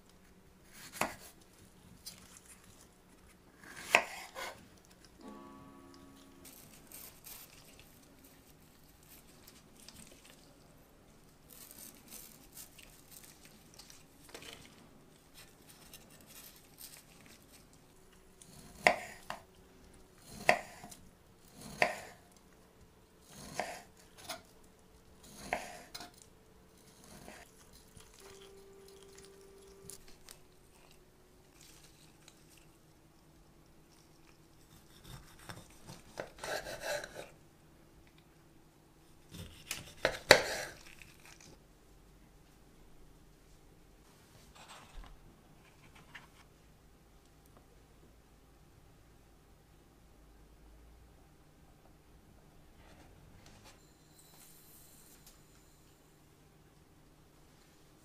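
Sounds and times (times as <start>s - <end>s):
rustling and scraping of fruit: 0.6s - 4.7s, 6.4s - 10.6s, 11.2s - 17.8s, 25.2s - 32.9s
knife chopping on cutting board: 21.6s - 22.2s, 23.3s - 24.4s.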